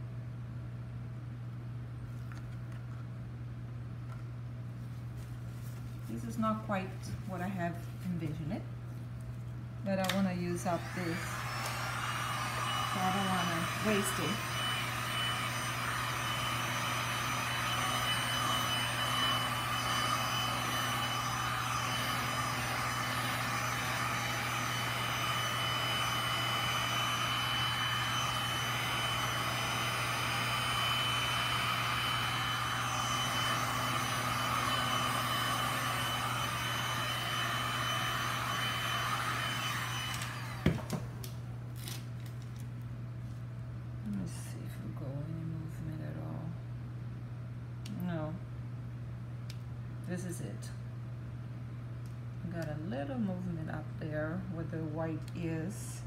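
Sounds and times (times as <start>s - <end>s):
heat gun blowing: 10.1s - 41.4s.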